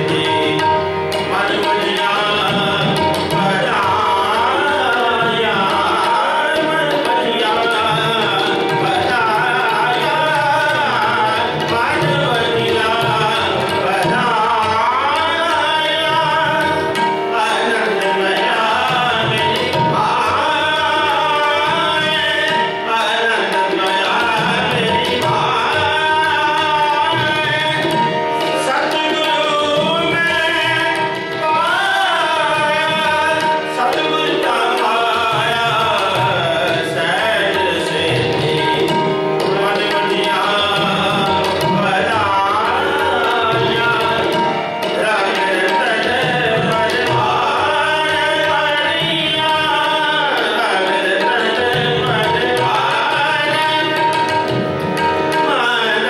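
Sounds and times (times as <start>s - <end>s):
harmoniums: 0.0s - 56.0s
tabla drumming: 0.0s - 56.0s.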